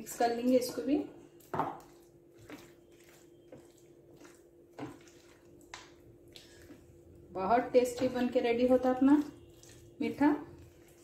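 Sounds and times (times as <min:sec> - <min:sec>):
spatula squelching in custard: 0:01.8 - 0:07.2, 0:08.9 - 0:11.0.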